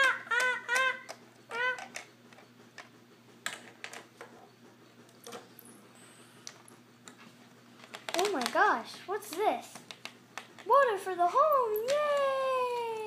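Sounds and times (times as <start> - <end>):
plastic toy bricks clicking: 0.0 - 2.1.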